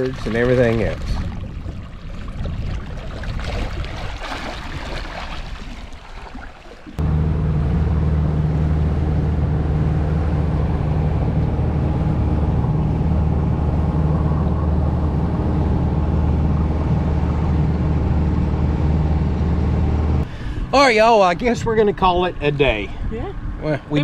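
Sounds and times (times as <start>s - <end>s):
outboard motor running: 0.0s - 4.8s, 6.9s - 20.6s
rush of moving boat: 0.0s - 24.0s.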